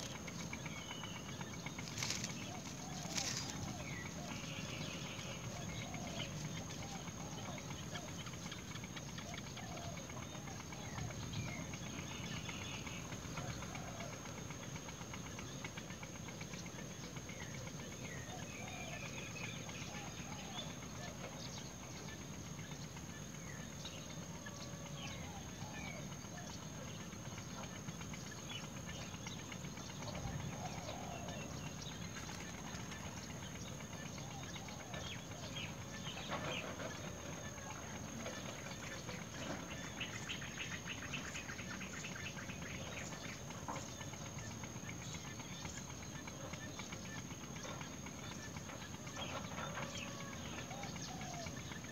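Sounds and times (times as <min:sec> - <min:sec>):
high-pitched whine: 0:00.0 - 0:11.7
bird chirps and calls: 0:00.0 - 0:14.1.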